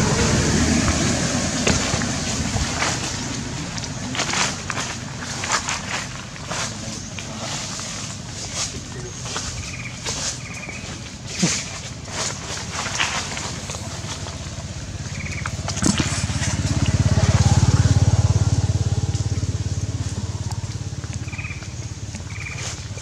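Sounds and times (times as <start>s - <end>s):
vehicle engine passing by: 0.0s - 10.3s, 11.0s - 23.0s.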